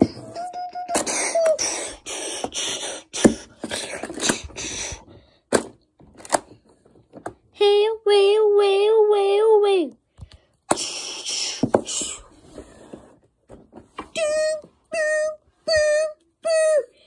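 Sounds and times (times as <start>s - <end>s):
person hissing and puffing: 0.0s - 5.1s, 10.7s - 13.1s.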